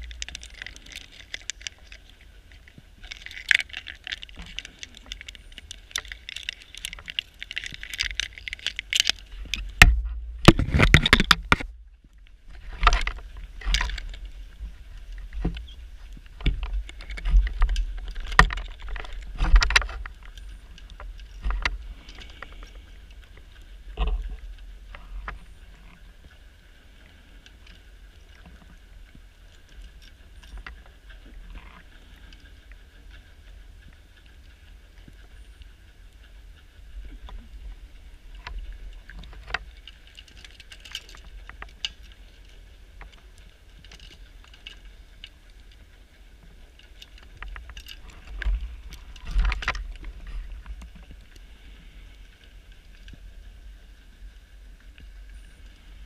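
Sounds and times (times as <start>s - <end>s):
steady hiss: 12.1s - 56.0s.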